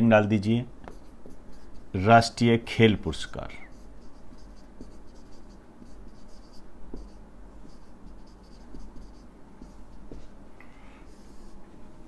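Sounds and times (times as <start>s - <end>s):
low steady hum: 0.0s - 12.0s
marker scratching on whiteboard: 0.8s - 2.4s, 3.2s - 10.3s, 11.1s - 11.6s.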